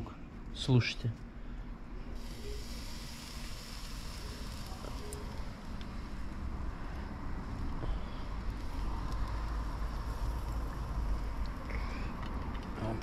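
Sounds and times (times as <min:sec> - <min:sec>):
fish sizzling on grill: 0:02.2 - 0:07.3, 0:08.3 - 0:11.7.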